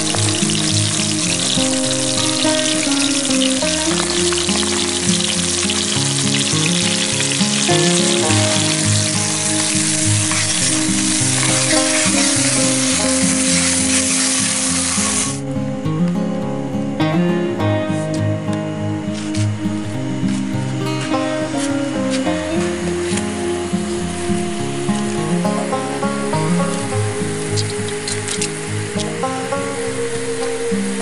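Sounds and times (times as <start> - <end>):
fish sizzling in hot oil: 0.0 - 15.4
background music: 0.0 - 31.0.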